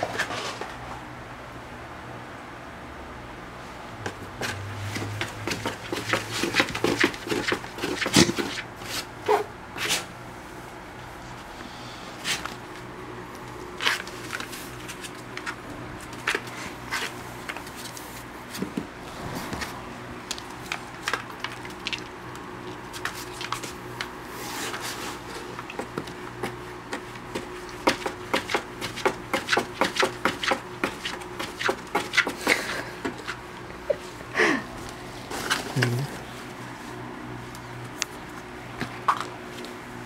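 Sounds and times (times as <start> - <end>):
paws scratching on cardboard: 4.4 - 10.1, 20.6 - 33.7.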